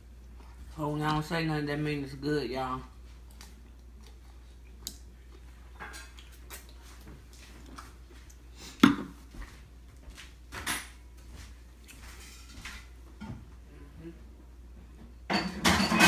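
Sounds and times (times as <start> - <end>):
cutlery clinking on plates: 15.3 - 16.0.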